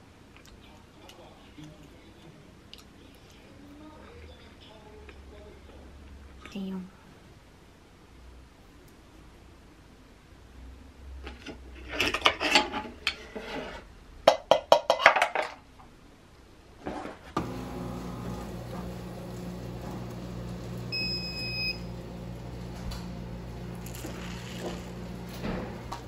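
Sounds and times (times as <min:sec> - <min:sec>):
steady machine hum: 0:17.4 - 0:26.0
short electronic beep: 0:20.9 - 0:21.9.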